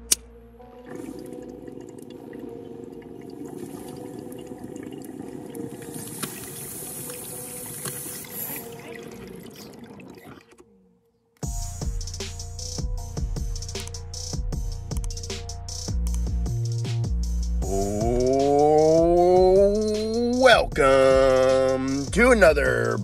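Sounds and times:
water bubbling in a bong: 0.8 - 10.6.

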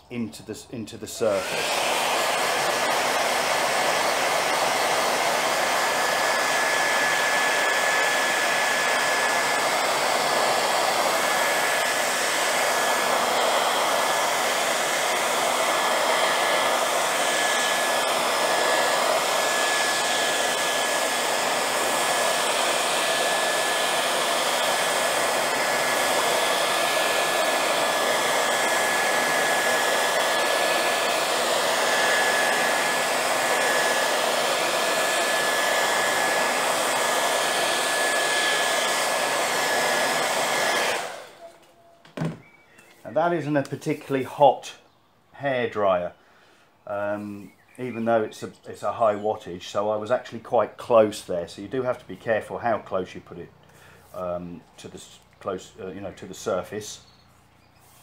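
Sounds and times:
hair dryer blowing: 1.1 - 44.2, 53.5 - 58.0.

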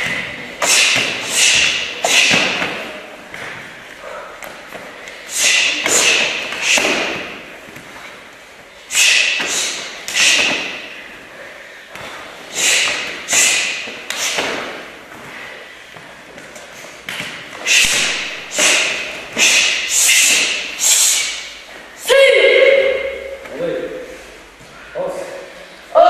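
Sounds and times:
karate strikes slapping: 0.0 - 3.6, 5.3 - 7.5, 8.9 - 10.9, 11.9 - 14.9, 17.0 - 21.4.

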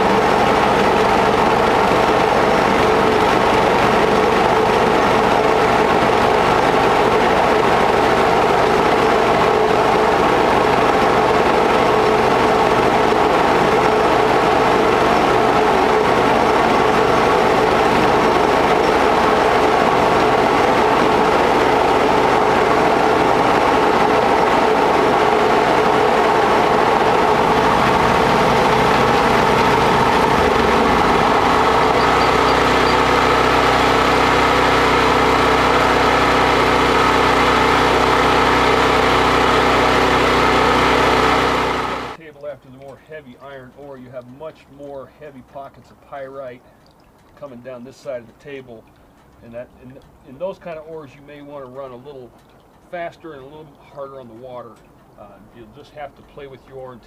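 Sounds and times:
machinery hum and rattle: 0.0 - 42.2.

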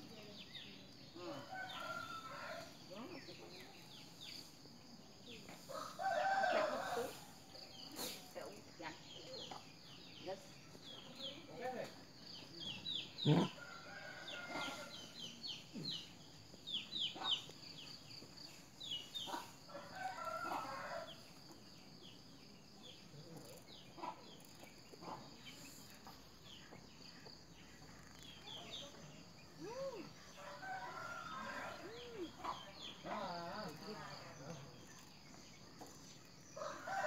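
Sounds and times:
chickens calling: 13.2 - 15.1.

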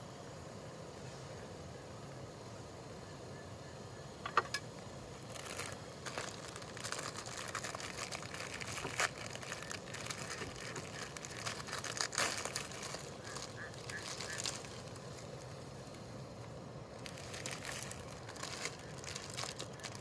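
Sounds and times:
gas stove burner hissing: 0.0 - 20.0
plastic packet crinkling and tearing: 5.2 - 16.0, 17.0 - 20.0.

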